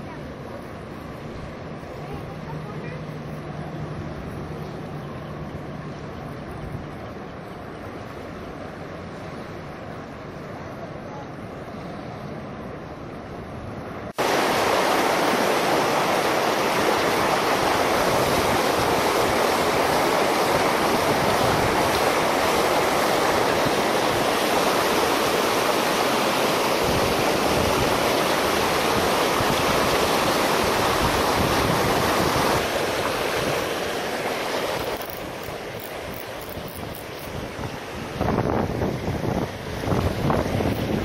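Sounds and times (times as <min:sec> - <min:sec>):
river rapids rushing: 0:14.0 - 0:41.0.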